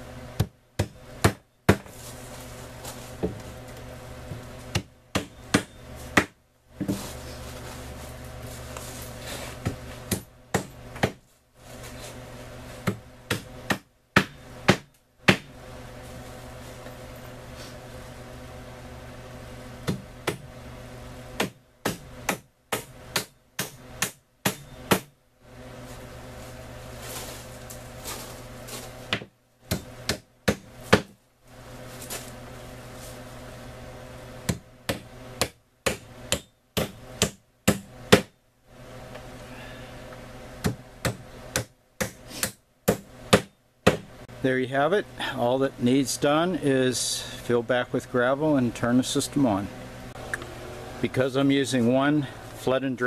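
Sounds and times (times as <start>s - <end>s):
steady hum: 0.0s - 53.0s
hammer striking nails into wood: 4.7s - 6.4s, 10.1s - 11.2s, 12.8s - 15.5s, 21.4s - 25.1s, 34.5s - 38.4s, 40.6s - 44.1s.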